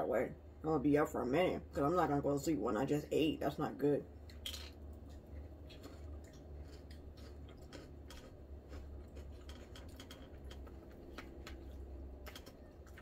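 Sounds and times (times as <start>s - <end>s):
low steady hum: 0.0s - 13.0s
chewing: 4.3s - 13.0s.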